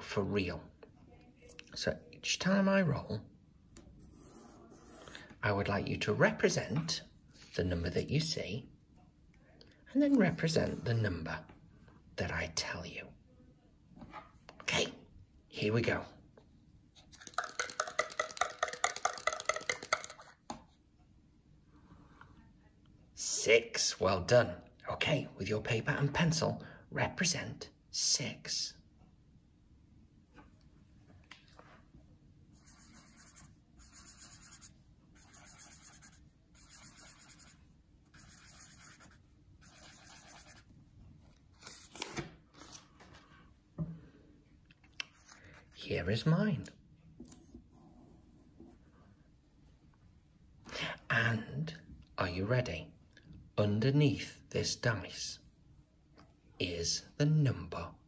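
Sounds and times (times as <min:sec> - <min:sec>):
marker pen scribbling on paper: 0:04.0 - 0:05.3, 0:10.1 - 0:11.1, 0:32.6 - 0:40.7
die rattling in a cup: 0:17.2 - 0:20.4.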